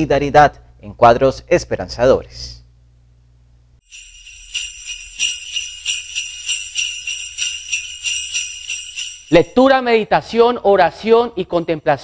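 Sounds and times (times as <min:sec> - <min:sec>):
jingle bells shaken: 0:03.8 - 0:09.9.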